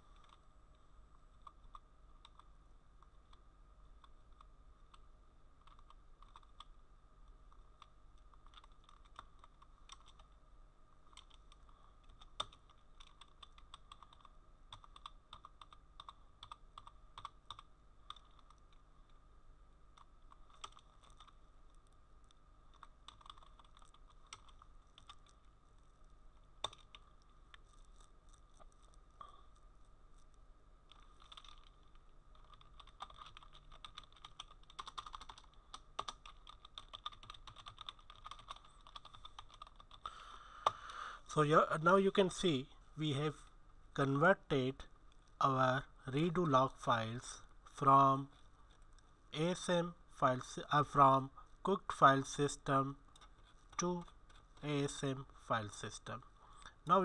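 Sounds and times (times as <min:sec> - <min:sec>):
typing on computer keyboard: 0:05.6 - 0:06.7, 0:07.8 - 0:10.3, 0:11.1 - 0:18.8, 0:20.0 - 0:21.4, 0:22.7 - 0:25.4, 0:26.6 - 0:27.0, 0:30.9 - 0:40.9.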